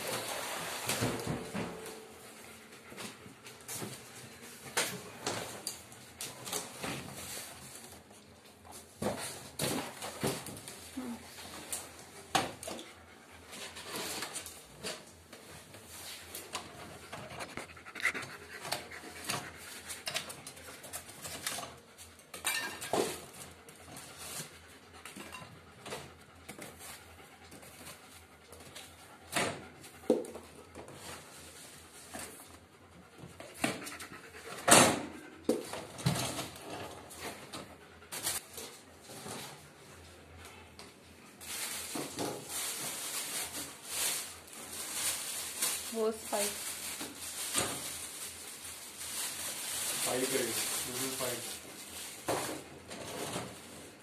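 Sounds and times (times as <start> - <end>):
dishwasher parts clinking and rattling: 22.3 - 23.3.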